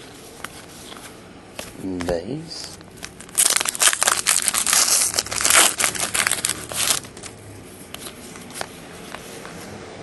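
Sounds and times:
foil wrapper crinkling: 2.8s - 7.4s.

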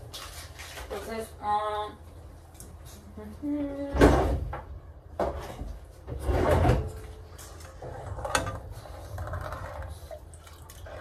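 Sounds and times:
drawer sliding open and shut: 5.2s - 7.0s.

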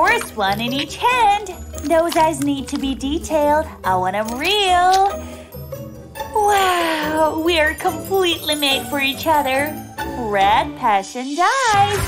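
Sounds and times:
background music with chime: 3.8s - 10.6s.

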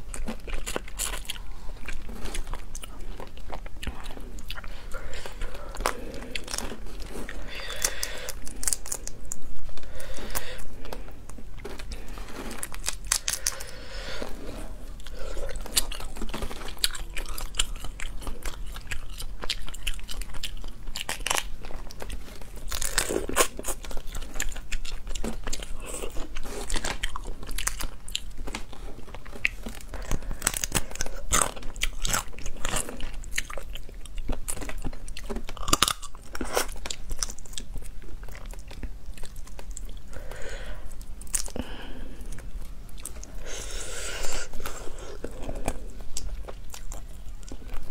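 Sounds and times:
chewing and crunching: 0.0s - 47.9s
crayfish shells cracking: 4.6s - 13.8s, 14.9s - 39.9s.

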